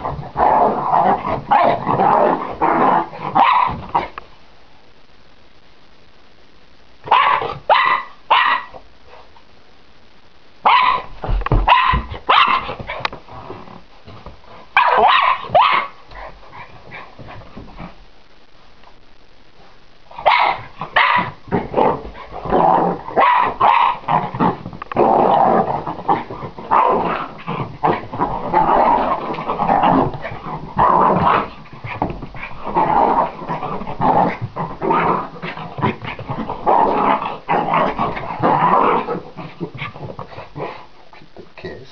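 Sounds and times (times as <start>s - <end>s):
puppy growling: 0.0s - 3.4s, 21.5s - 40.9s
puppy barking: 3.4s - 3.8s, 7.1s - 8.8s, 10.6s - 11.1s, 11.7s - 12.8s, 14.8s - 16.0s, 20.2s - 21.4s, 23.2s - 24.0s.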